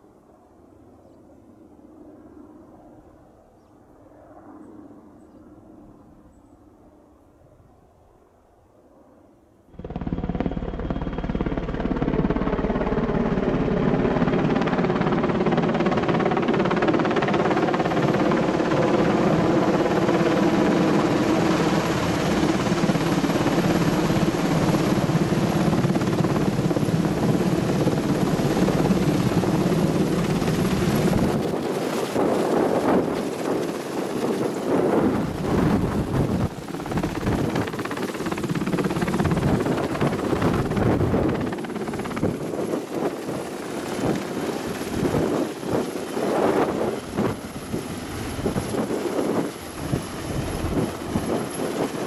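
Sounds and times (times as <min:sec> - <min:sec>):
helicopter rotor and turbine whine: 0:00.0 - 0:52.0.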